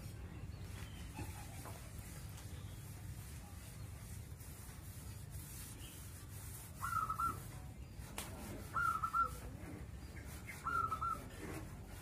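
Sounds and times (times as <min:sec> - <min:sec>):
dove cooing: 0:08.7 - 0:09.4, 0:10.6 - 0:11.3.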